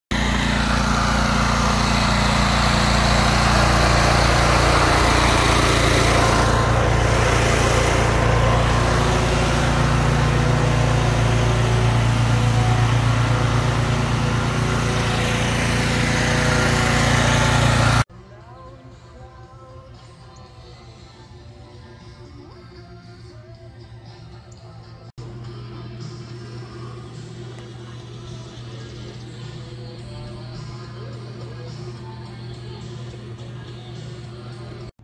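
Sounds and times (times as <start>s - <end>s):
pressure washer engine running: 0.1s - 18.1s.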